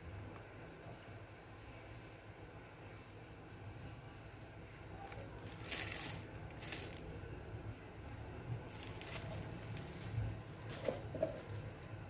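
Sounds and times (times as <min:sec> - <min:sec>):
low steady hum: 0:00.0 - 0:12.0
fried shallots rustling and crackling: 0:05.0 - 0:07.3, 0:08.6 - 0:11.9.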